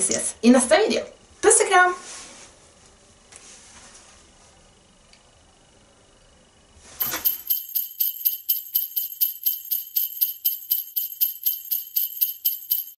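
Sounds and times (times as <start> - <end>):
sleigh bells shaking: 7.0 - 13.0.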